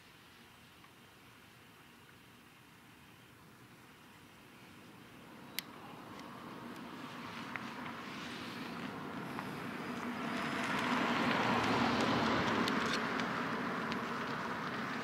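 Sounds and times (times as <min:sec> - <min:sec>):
vehicle passing: 0:05.3 - 0:15.0.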